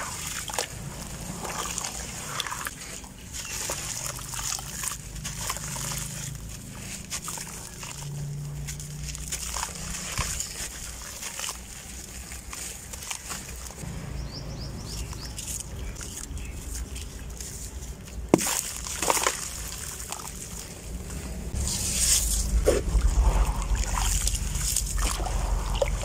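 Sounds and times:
water sloshing: 0.0 - 26.0
grains pattering into water: 18.2 - 26.0.

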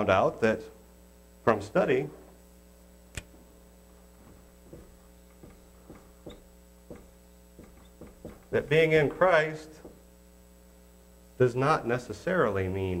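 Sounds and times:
mains hum: 0.0 - 13.0
sharp click: 3.1 - 3.3
marker squeaking on whiteboard: 4.7 - 7.0, 7.6 - 8.6.

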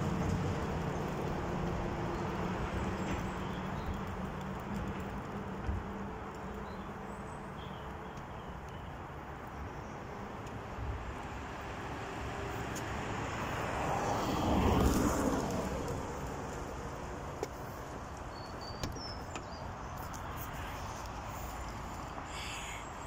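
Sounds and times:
faint clicks: 3.0 - 9.6
car passing by: 10.8 - 18.2.

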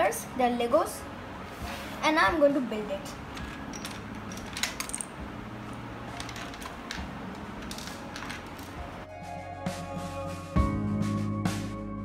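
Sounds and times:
plastic toy bricks clicking: 6.1 - 8.8.

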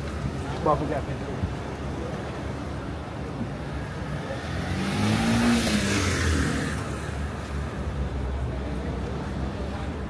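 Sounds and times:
car driving past: 4.1 - 7.4.

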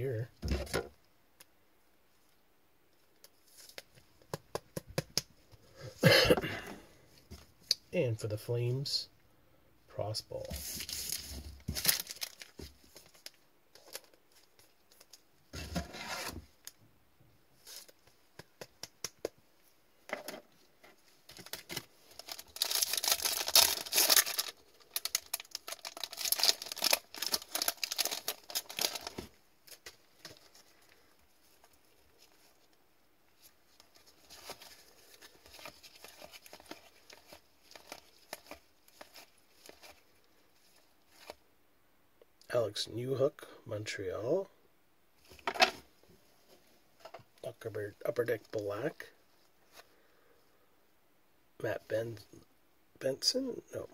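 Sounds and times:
cards rustling: 21.0 - 32.7, 33.4 - 41.4
foil wrapper tearing: 22.2 - 29.2.

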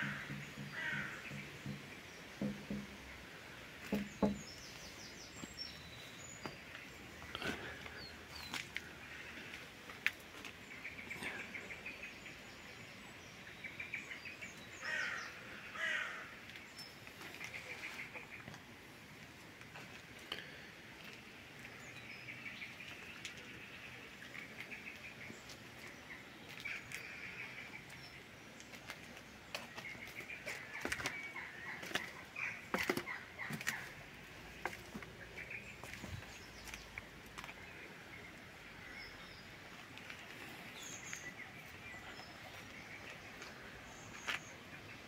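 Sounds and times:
sharp clicks and knocks: 0.0 - 3.0, 3.8 - 4.5
birdsong chirping: 0.0 - 18.8, 19.8 - 45.0.

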